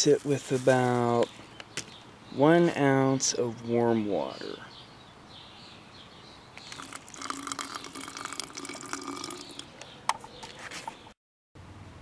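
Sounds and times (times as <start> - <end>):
water pouring and trickling: 6.6 - 9.7.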